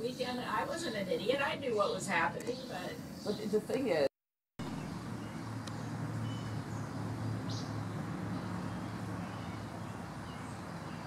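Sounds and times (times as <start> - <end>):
constant low hum: 4.6 - 11.0.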